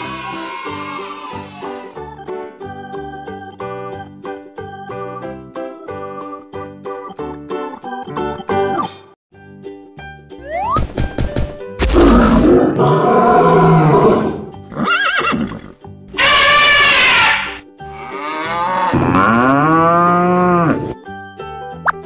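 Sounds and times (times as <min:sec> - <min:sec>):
children's background music: 0:00.0 - 0:14.7, 0:15.8 - 0:22.0
gorilla roaring: 0:11.8 - 0:14.6
horse whinny: 0:12.6 - 0:19.5
elephant trumpeting: 0:16.2 - 0:20.8
cow moo: 0:17.9 - 0:21.0.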